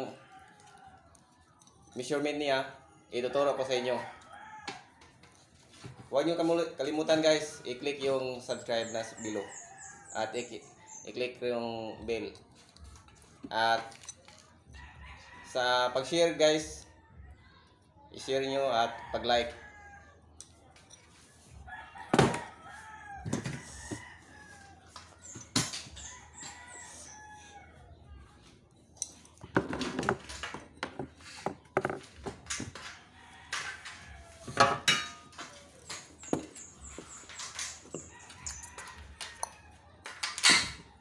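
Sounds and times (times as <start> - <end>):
rooster crowing: 3.5 - 5.2, 21.7 - 25.0, 26.0 - 27.8, 32.7 - 39.8.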